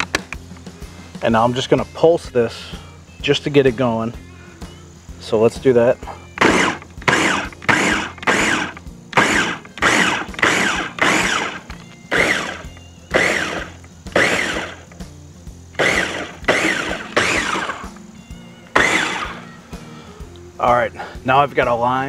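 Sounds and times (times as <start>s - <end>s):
electric food chopper pulsing: 6.4s - 14.9s, 15.8s - 17.9s, 18.7s - 19.4s.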